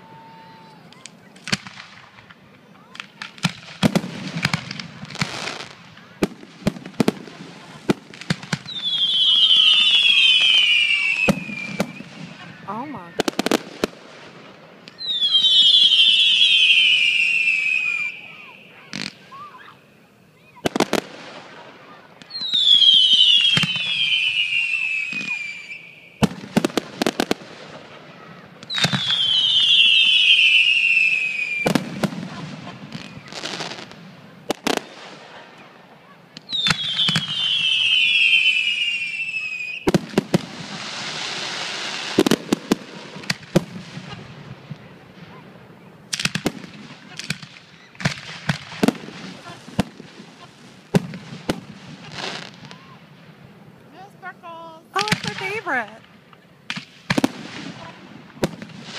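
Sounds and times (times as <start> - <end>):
fireworks hissing and crackling: 0.0 - 58.9
whistling fireworks: 0.0 - 58.9
firework shells bursting: 46.1 - 52.8, 54.9 - 58.9.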